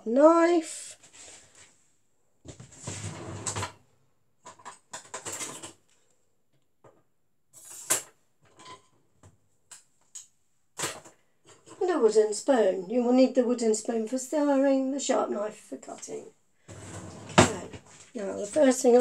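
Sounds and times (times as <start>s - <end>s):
kitchen drawer sliding open: 16.7s - 17.8s.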